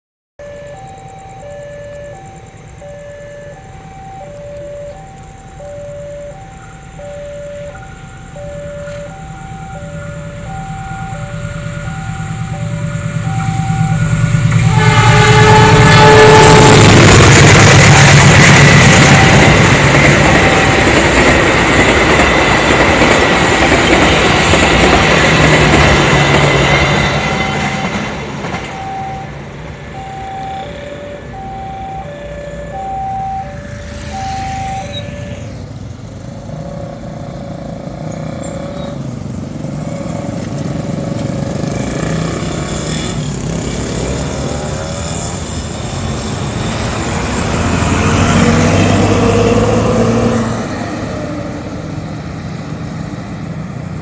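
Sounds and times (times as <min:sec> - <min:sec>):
two-tone level-crossing alarm: 0:00.4 - 0:35.9
diesel bus driving past: 0:00.4 - 0:54.0
train coaches rolling past: 0:00.4 - 0:54.0.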